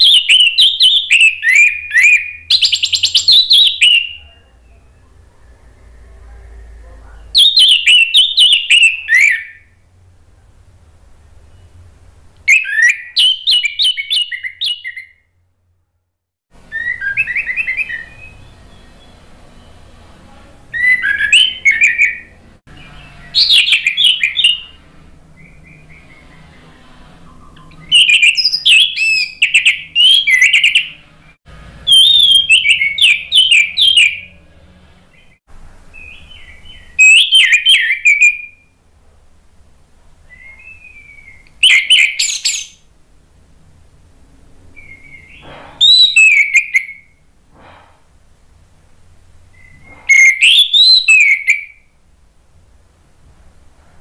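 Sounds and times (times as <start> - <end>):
bird singing whistled phrases: 0.0 - 5.6, 7.4 - 9.7, 12.5 - 15.2, 16.7 - 19.7, 20.8 - 24.8, 27.2 - 31.0, 31.9 - 34.4, 35.9 - 38.7, 40.3 - 42.8, 44.8 - 47.2, 49.5 - 51.8.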